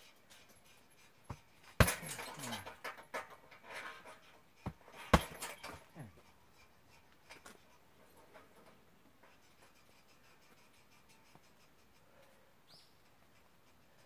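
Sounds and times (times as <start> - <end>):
punching bag hits: 5.1 - 5.8.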